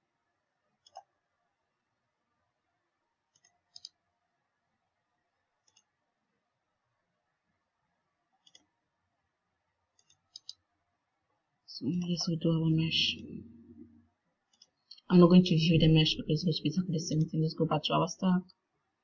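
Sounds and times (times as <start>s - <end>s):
computer mouse clicking: 0.8s - 1.1s, 3.3s - 4.0s, 5.6s - 6.0s, 8.4s - 8.8s, 9.9s - 10.6s, 14.5s - 15.1s.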